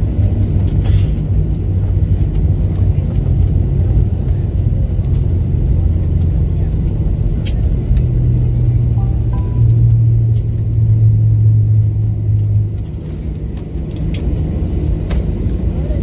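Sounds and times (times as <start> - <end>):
jet engines droning: 0.0 - 16.0
light clicks and rattles: 11.8 - 16.0.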